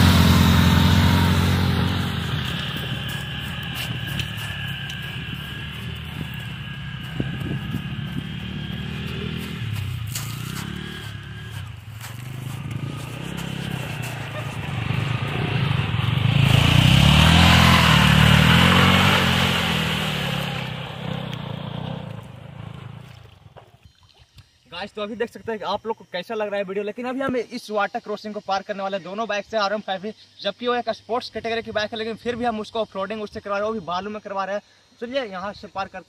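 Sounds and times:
motorcycles revving in sand: 0.0 - 23.6
water splashing: 22.9 - 24.6.

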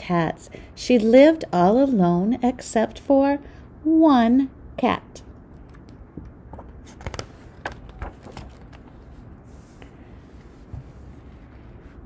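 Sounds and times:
book pages rustling: 5.6 - 12.0.

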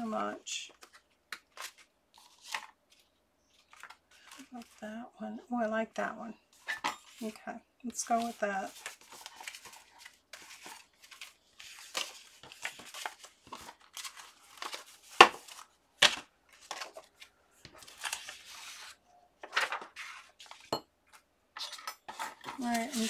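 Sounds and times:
card tags rustling: 8.0 - 23.0.

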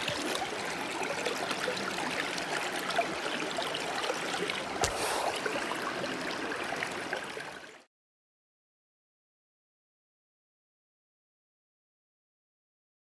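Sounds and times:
river water running: 0.0 - 7.9.

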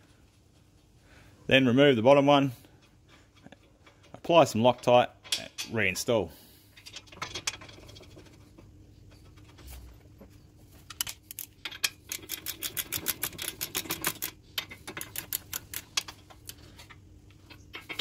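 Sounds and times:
socket ratchet clicking: 12.1 - 16.0.

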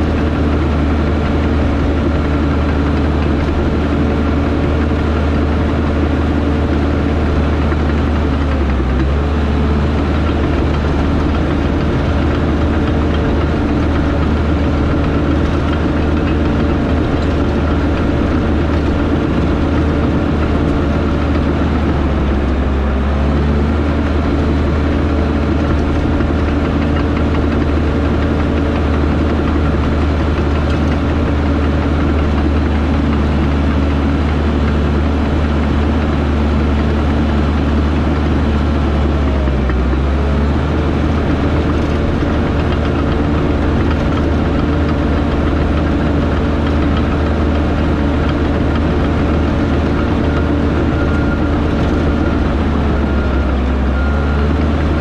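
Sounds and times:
heavy diesel engine running: 0.0 - 55.0.

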